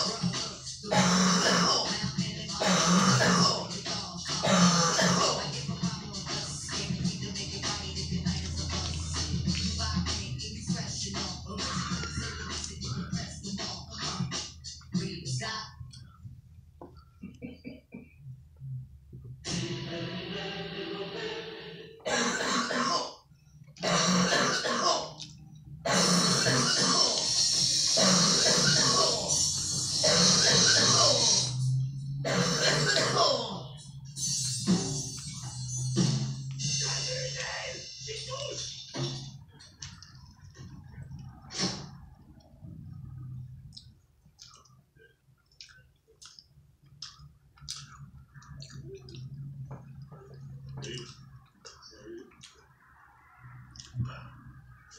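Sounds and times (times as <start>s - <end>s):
faint low hum: 0.0s - 54.9s
person clearing throat: 0.9s - 1.9s, 2.6s - 3.7s, 4.4s - 5.5s, 22.0s - 23.2s, 23.8s - 25.2s, 25.9s - 27.2s, 32.2s - 33.6s
person chewing with mouth clicks: 7.7s - 10.2s, 11.6s - 14.9s, 25.0s - 31.5s, 43.6s - 52.9s, 53.7s - 54.4s
person coughing: 22.1s - 23.2s, 23.8s - 25.2s, 32.3s - 33.5s.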